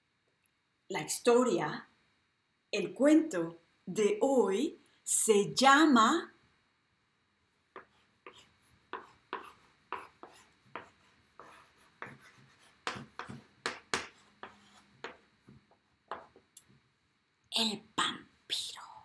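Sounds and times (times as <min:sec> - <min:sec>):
chalk scratching on blackboard: 0:07.8 - 0:16.4.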